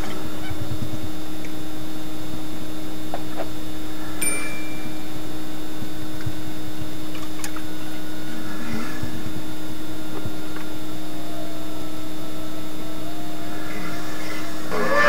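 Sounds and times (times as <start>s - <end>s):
low hum: 0.0s - 15.0s
steady hiss: 0.0s - 15.0s.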